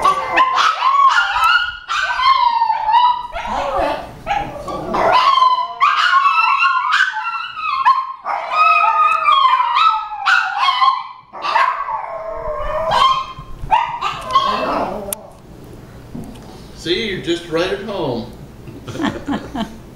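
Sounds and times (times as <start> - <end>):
small dog barking and howling: 0.0 - 15.3.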